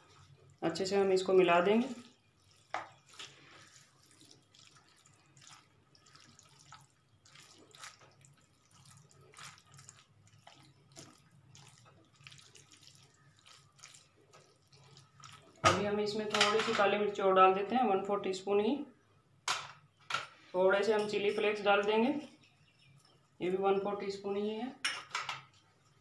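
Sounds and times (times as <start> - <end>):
wet squelching of pasta in sauce: 0.0 - 15.6.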